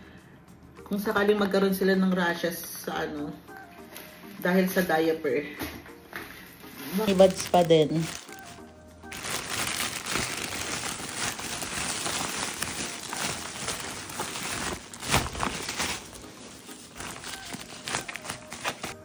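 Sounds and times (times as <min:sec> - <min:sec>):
plastic bag crinkling: 0:06.8 - 0:19.0.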